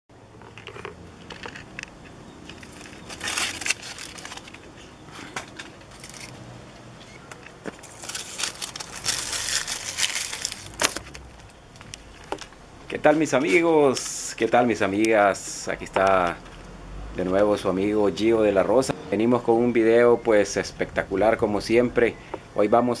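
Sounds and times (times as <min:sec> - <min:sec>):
dry leaves crackling and rustling: 0:02.4 - 0:06.4, 0:07.4 - 0:14.4.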